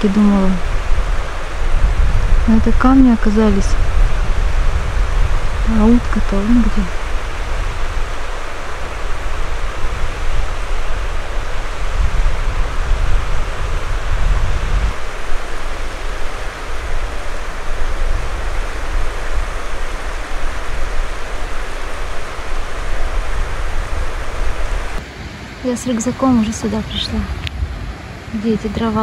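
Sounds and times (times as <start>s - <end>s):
low uneven rumble: 0.0s - 29.0s
river water rushing: 0.0s - 29.0s.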